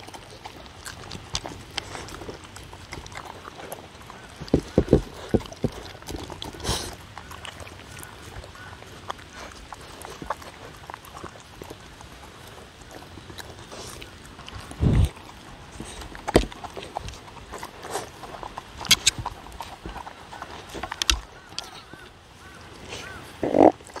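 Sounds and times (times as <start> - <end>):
dogs chewing and licking: 0.0 - 24.0
muzzles knocking wooden bowls: 4.4 - 5.8.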